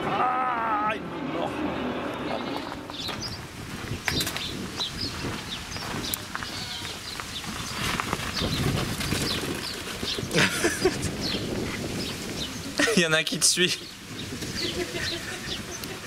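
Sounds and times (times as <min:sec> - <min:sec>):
small birds chirping: 0:02.0 - 0:16.0
sheep trotting on dirt: 0:02.6 - 0:10.4.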